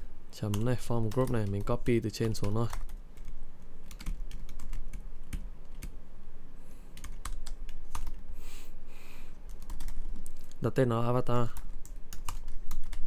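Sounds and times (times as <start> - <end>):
keyboard keys clicking: 9.5 - 10.6.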